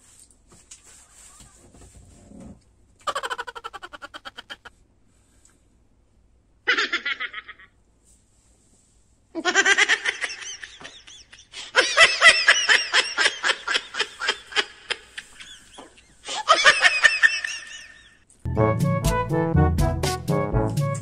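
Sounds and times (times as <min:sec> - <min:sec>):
high-pitched rapid laughter: 0:03.0 - 0:04.7, 0:06.7 - 0:07.7.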